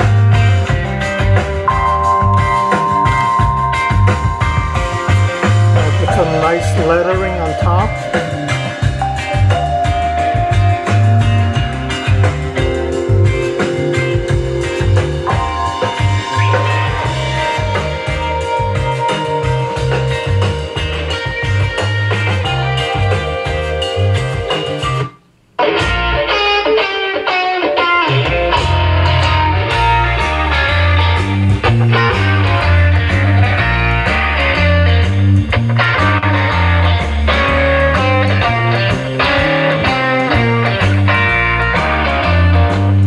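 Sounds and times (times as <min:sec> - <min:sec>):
guitar music with bass through speakers: 0:00.0 - 0:43.0.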